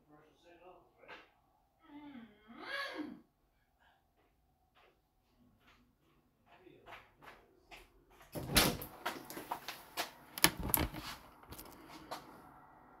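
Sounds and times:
handling knocks and clicks: 10.4 - 11.8.

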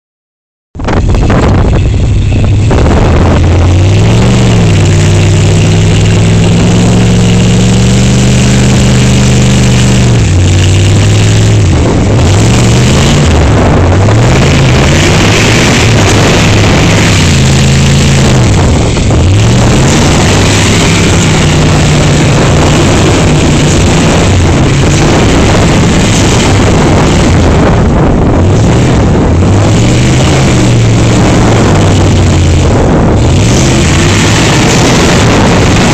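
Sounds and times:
steady rush of noise: 0.8 - 35.9
engine revving hard: 0.9 - 35.9.

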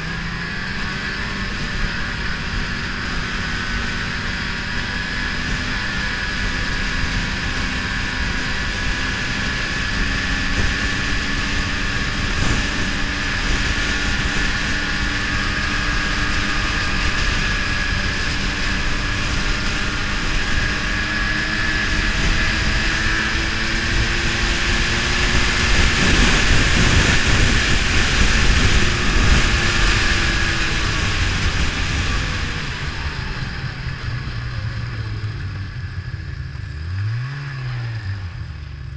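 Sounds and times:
snowmobile engine running: 0.0 - 38.9.

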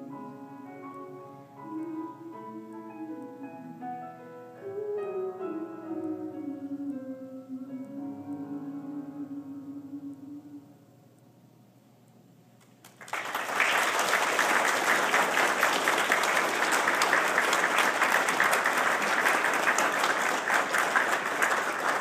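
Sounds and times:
crowd applauding: 12.8 - 22.0.

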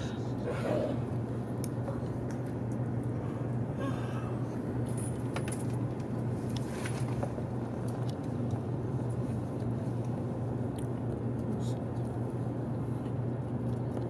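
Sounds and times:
train carriage rumble and hum: 0.0 - 14.0.

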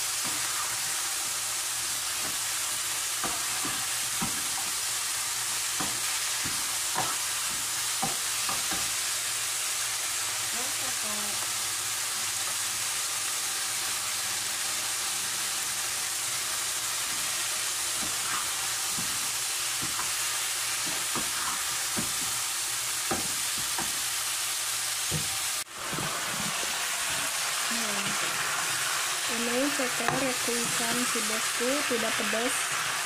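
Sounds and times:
food sizzling in frying pan: 0.0 - 33.0
spatula scraping a pan: 17.1 - 22.4.

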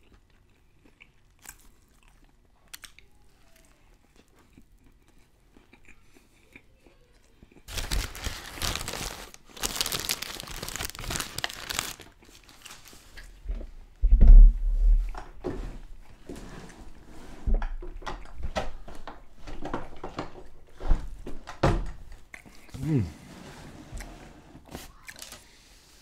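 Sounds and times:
crunching of food being eaten: 0.0 - 13.3
paper wrapper crinkling: 7.7 - 13.2, 25.0 - 25.4
heavy low thump: 14.0 - 15.2.

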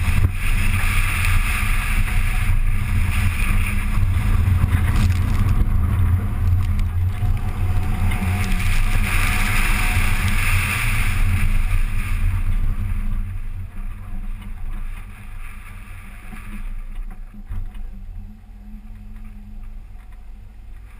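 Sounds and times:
car engine running hard: 0.0 - 14.8
wind noise: 0.0 - 20.9.

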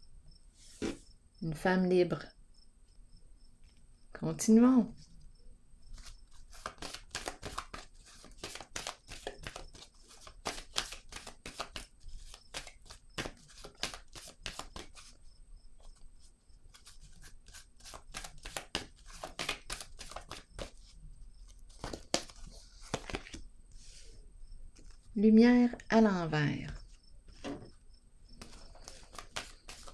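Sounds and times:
cards being shuffled: 6.0 - 15.2, 16.7 - 24.0, 24.7 - 25.1, 26.7 - 27.7, 28.4 - 29.9.

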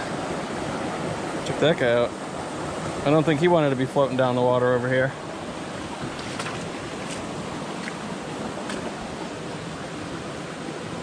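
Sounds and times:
brook flowing over stones: 5.2 - 11.0.

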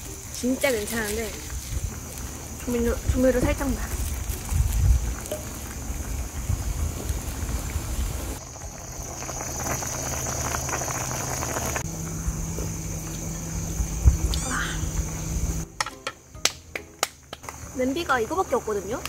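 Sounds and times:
stew bubbling in a pot: 0.0 - 14.3.

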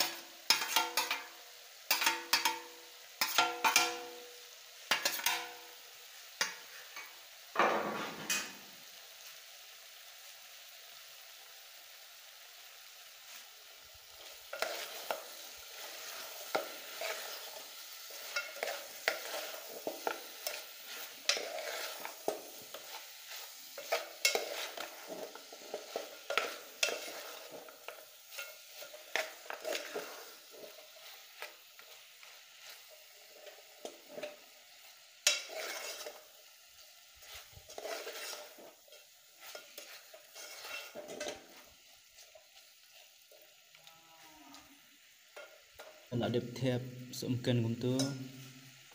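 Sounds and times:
metal spoon scraping in pot: 0.0 - 1.2, 1.9 - 2.6, 4.9 - 5.5, 14.4 - 34.4, 35.2 - 36.3, 37.2 - 42.4
meat sizzling: 0.0 - 48.9.

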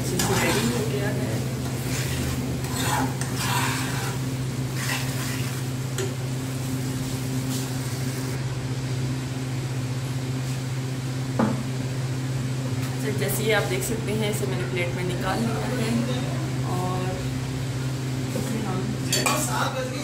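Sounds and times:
food sizzling in a frying pan: 0.0 - 8.4
steady low hum: 0.0 - 20.0
metal spoon scraping a pan: 0.1 - 1.0, 1.6 - 5.7.

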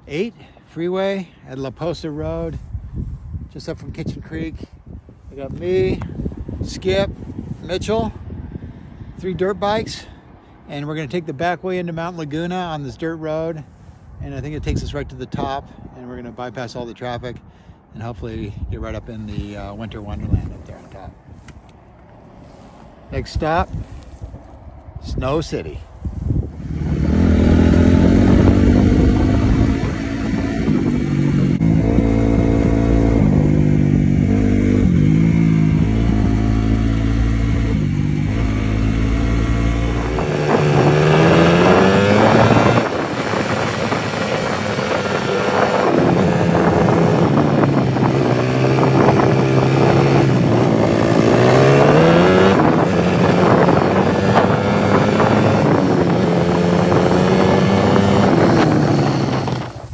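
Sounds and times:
dirt bike engine revving: 26.6 - 59.9.

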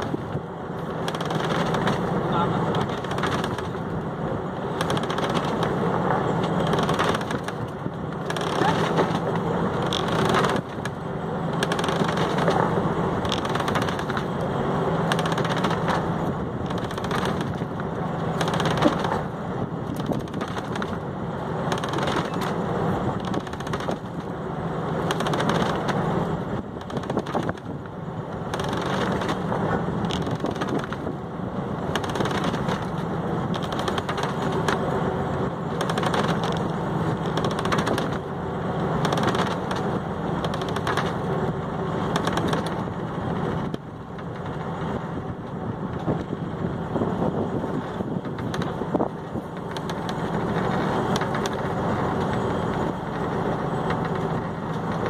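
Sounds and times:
boat engine pulsing: 0.0 - 55.0.

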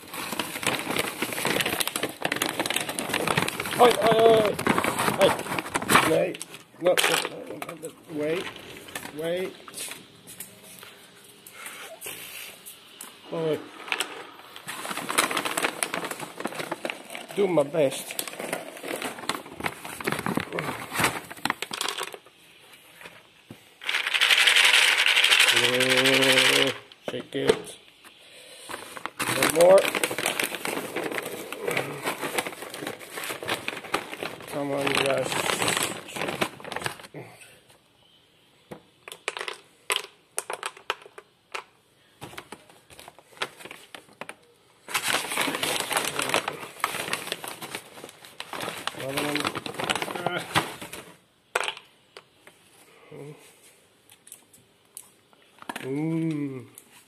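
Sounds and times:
bag crinkling: 0.0 - 9.5, 13.4 - 22.3, 23.8 - 26.8, 28.7 - 37.1, 42.9 - 51.2
dry kibble rattling in plastic bowl: 0.2 - 7.4, 21.3 - 22.2, 23.8 - 26.8, 29.2 - 37.0
loud steady hiss: 7.6 - 16.6.

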